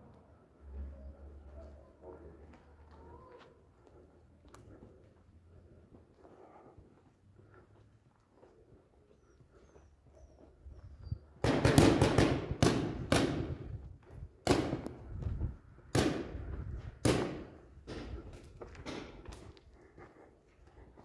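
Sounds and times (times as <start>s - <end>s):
paintball markers firing: 11.4s - 13.6s.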